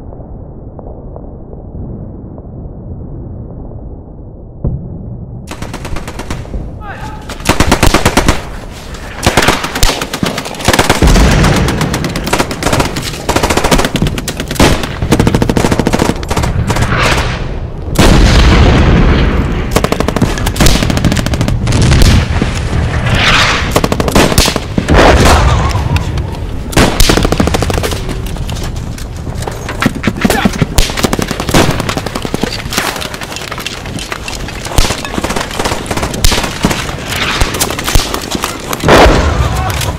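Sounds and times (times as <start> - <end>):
heavy low booms: 0.0 - 5.6.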